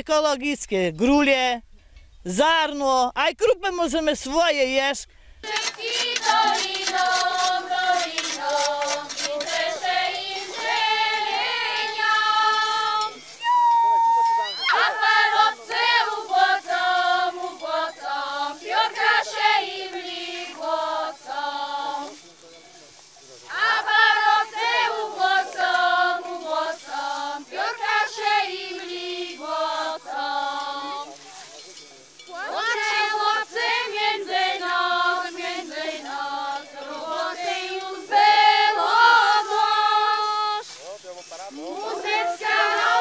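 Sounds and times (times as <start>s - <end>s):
group of voices singing: 5.4s - 13.4s, 14.4s - 22.4s, 23.4s - 31.6s, 32.2s - 40.8s, 41.4s - 43.0s.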